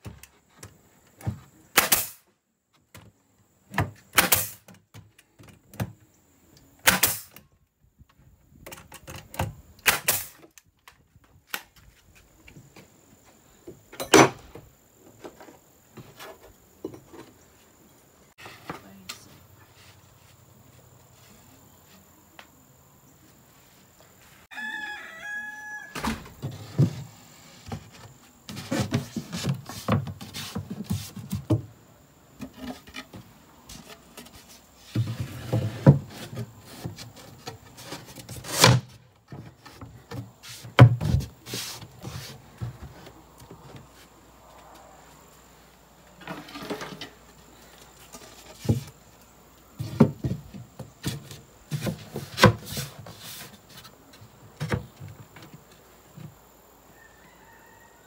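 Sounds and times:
nail gun firing nails into wood: 1.7s - 2.2s, 4.1s - 4.8s, 6.8s - 7.4s, 9.3s - 10.4s
rooster crowing: 24.5s - 26.2s, 56.9s - 58.0s.

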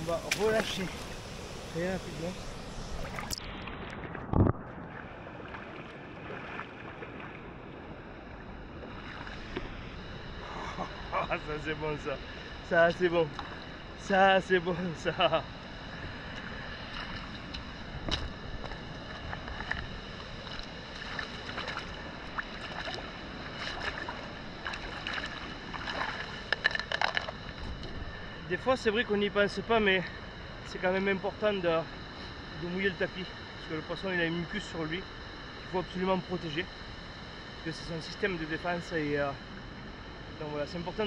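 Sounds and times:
running river water: 0.0s - 41.0s
short splashes: 4.9s - 7.4s.

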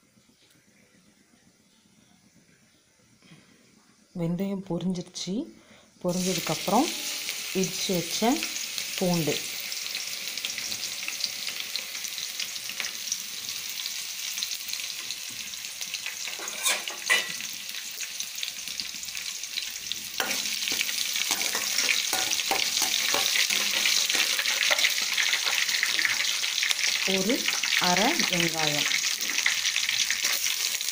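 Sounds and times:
garlic sizzling in hot oil: 6.0s - 30.9s.

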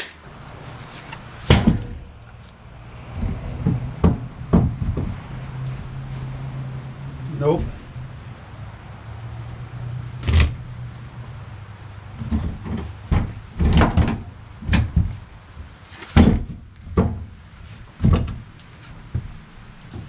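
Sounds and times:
wooden log knocks and thumps: 0.9s - 5.9s, 12.2s - 20.0s.

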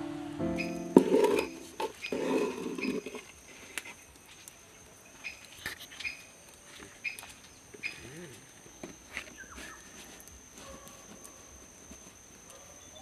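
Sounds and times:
batter being stirred: 1.0s - 3.3s.

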